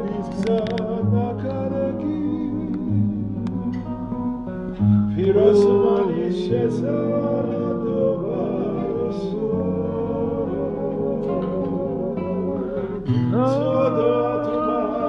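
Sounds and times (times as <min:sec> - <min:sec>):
low sustained accompaniment: 0:00.0 - 0:15.0
voices singing in harmony: 0:00.0 - 0:15.0.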